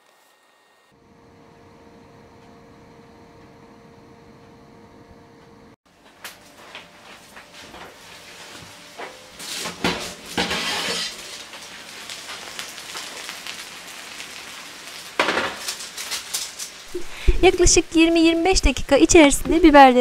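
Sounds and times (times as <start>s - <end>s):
baking tray scraping out of oven: 6.8s - 17.4s.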